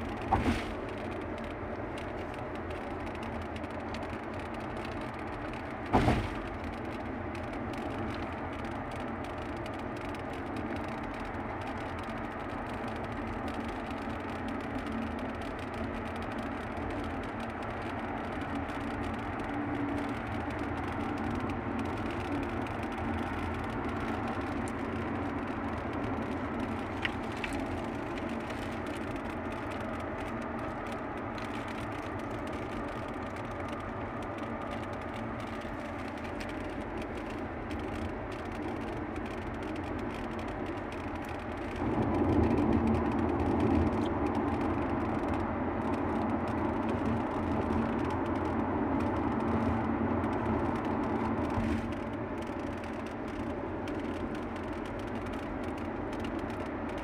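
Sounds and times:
road and engine noise in car: 0.0s - 57.0s
sharp thump: 0.3s - 0.7s, 5.9s - 6.4s.

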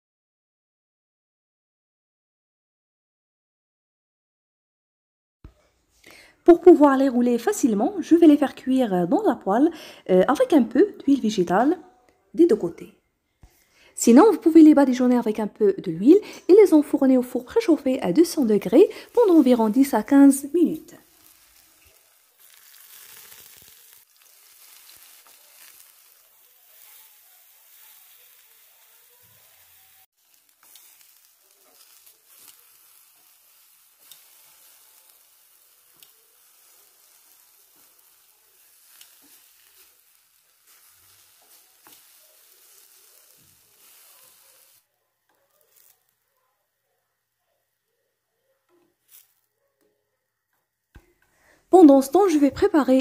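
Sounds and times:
slices sizzling in a frying pan: 14.0s - 47.8s, 48.9s - 49.5s
oil crackles: 16.7s - 46.4s, 48.9s - 49.5s.

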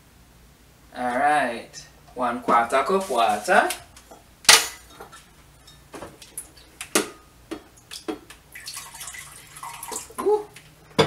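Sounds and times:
water pouring into glass: 8.5s - 10.2s.

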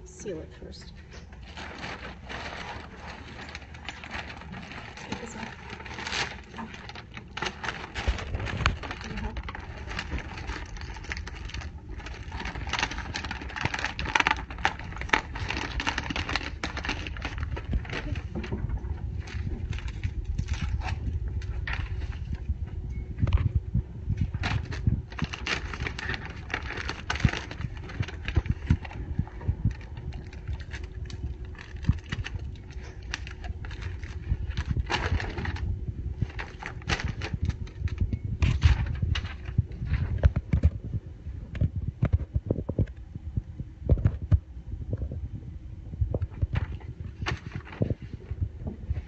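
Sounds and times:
plastic crinkling: 1.0s - 40.8s, 46.1s - 49.0s
hands rubbing and tapping package: 24.2s - 40.8s.

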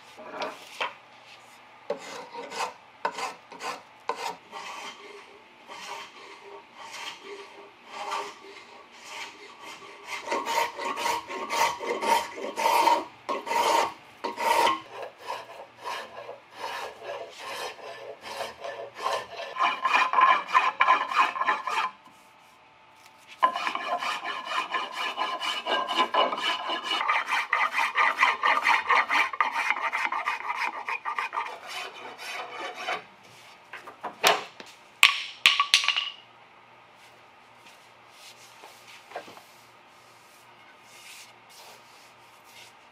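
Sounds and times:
spokeshave scraping wood: 0.1s - 22.3s, 23.2s - 33.6s.

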